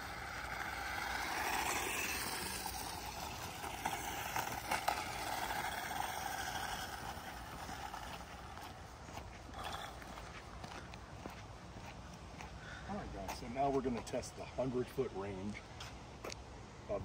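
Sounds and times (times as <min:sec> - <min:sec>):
toy car electric motor running: 0:00.0 - 0:08.8, 0:09.5 - 0:10.2
tyres rolling over concrete: 0:00.0 - 0:08.8, 0:09.5 - 0:10.3.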